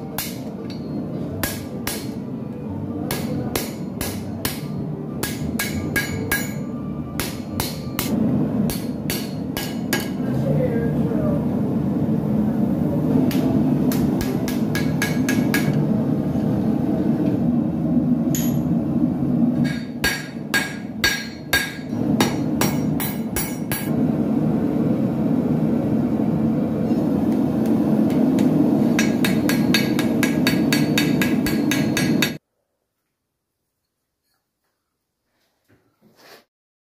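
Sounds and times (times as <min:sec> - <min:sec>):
hammer striking steel on anvil: 0:00.0 - 0:02.2, 0:03.1 - 0:10.2, 0:13.3 - 0:15.8, 0:18.3 - 0:18.8, 0:19.6 - 0:23.9, 0:27.7 - 0:32.4.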